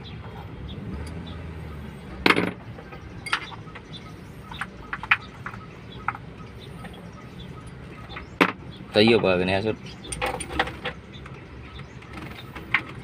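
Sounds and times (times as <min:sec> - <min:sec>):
tools clinking against metal: 0:02.3 - 0:03.7, 0:10.0 - 0:11.0.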